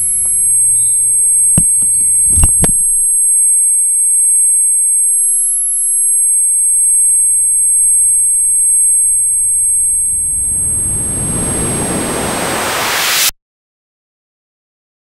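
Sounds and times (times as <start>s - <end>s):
high-pitched ringing tones: 0.0s - 12.7s
faint low rumble: 9.9s - 13.1s.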